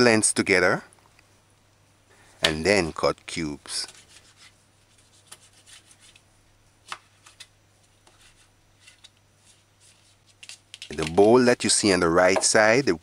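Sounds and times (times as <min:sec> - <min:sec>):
knife tapping cutting board: 0:12.3 - 0:12.6.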